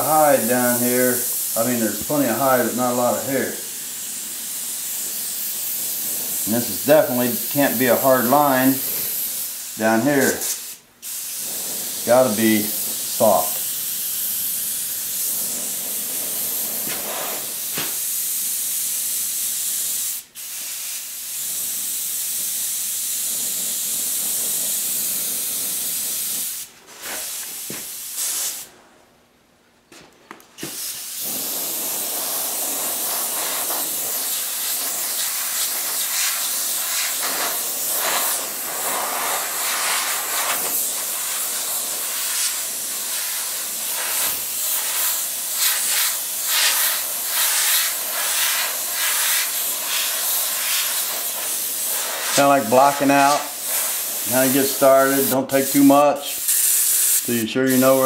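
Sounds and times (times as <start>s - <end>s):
airbrush spraying hiss: 0.0s - 28.7s, 30.6s - 58.0s.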